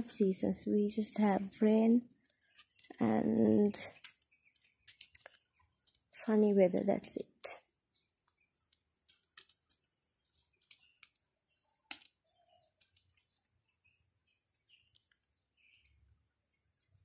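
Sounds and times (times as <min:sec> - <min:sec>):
faint bird chirps: 0:01.8 - 0:17.0
faint clicks: 0:14.5 - 0:15.2.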